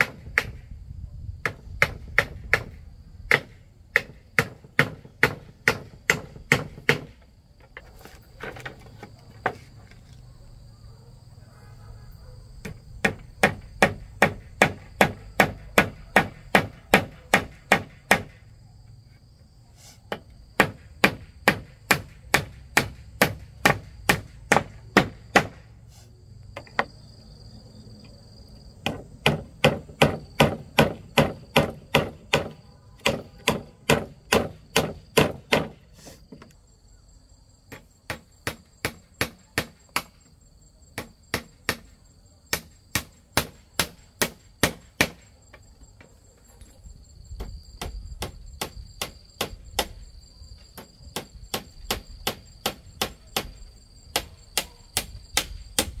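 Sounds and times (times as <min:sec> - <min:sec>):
blade chopping on a board: 0:28.8 - 0:35.8.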